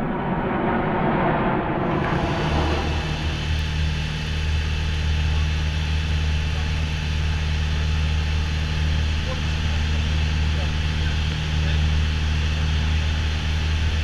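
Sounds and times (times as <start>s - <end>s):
rush of air: 0.0s - 5.8s
propeller plane engine droning: 0.0s - 14.0s.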